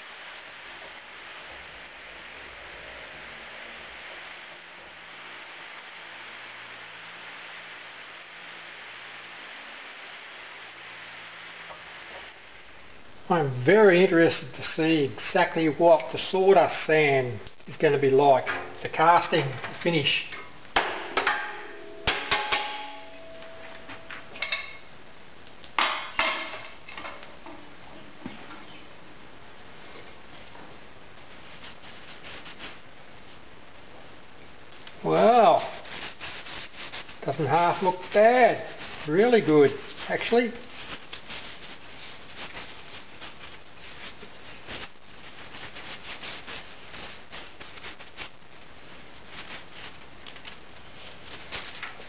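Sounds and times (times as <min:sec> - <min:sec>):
faint rustling: 0:35.5 - 0:52.0.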